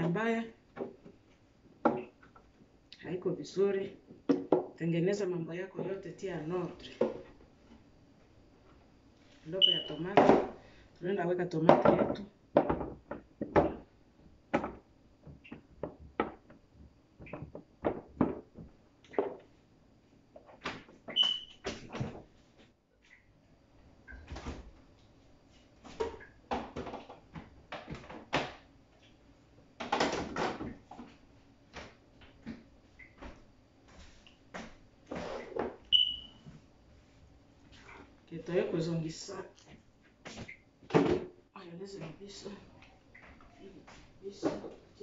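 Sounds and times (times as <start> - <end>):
items knocking on fridge shelves: 11.6 - 13.9, 14.5 - 19.4.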